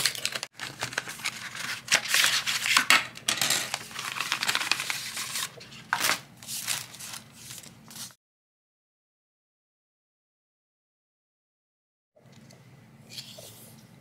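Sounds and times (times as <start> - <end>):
cardboard and plastic rustling: 0.0 - 8.1.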